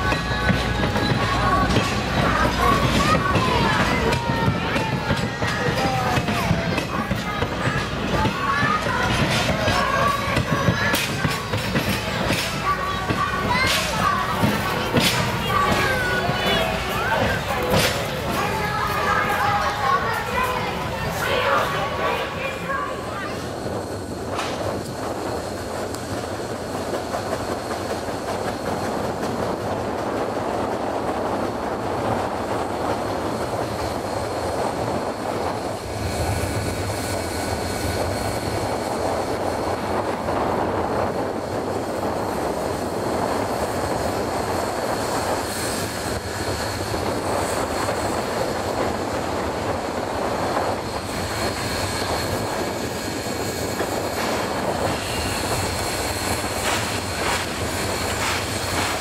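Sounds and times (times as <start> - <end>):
steam locomotive rumble: 0.0 - 59.0.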